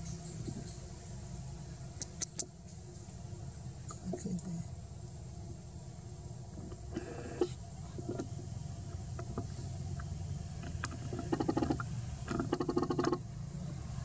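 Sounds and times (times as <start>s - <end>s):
low hum: 0.0s - 14.0s
rapid rattling bursts: 10.6s - 13.3s.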